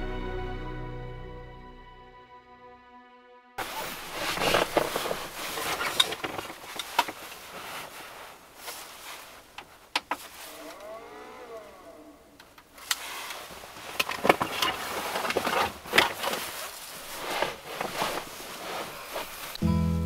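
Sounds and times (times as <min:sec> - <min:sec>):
fabric rustling: 0:03.6 - 0:12.0, 0:12.7 - 0:19.6
faint rising and falling tone: 0:10.5 - 0:12.4.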